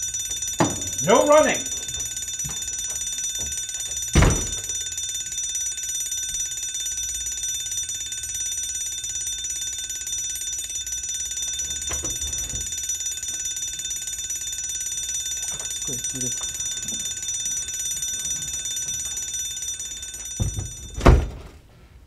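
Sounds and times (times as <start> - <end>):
fire alarm ringing: 0.0 - 21.7
loud thump: 4.2 - 4.6, 20.4 - 21.6.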